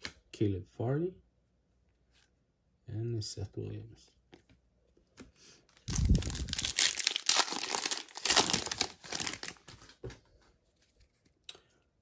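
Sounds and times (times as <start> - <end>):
foil wrapper crinkling: 5.8 - 10.0.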